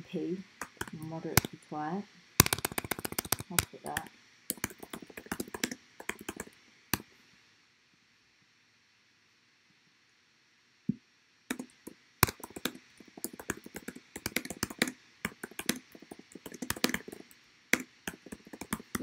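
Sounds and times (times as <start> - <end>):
keyboard typing clicks: 0.6 - 1.6, 2.4 - 6.5, 11.5 - 19.0.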